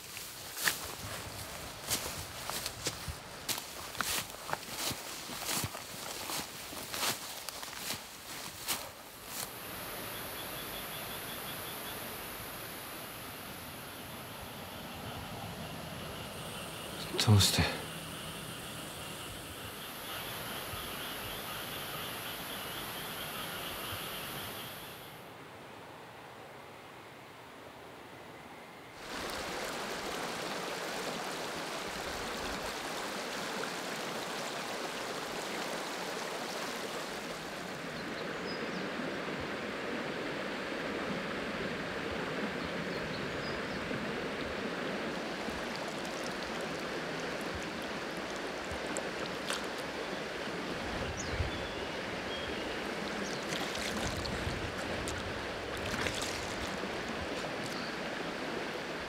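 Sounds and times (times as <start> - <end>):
river water rushing: 15.5 - 19.9, 29.0 - 59.0.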